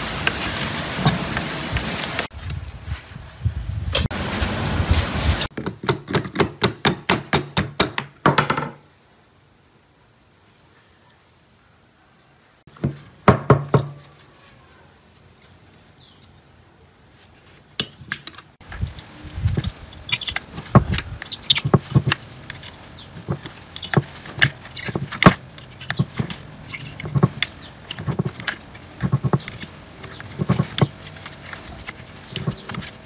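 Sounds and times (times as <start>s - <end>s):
metal clicks and scrapes: 17.8s - 33.0s.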